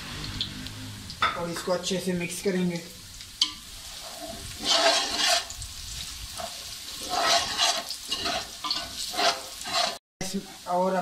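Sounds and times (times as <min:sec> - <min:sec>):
spices sizzling in hot oil: 0:00.0 - 0:11.0
metal spoon scraping pot: 0:03.4 - 0:05.5, 0:06.4 - 0:10.0.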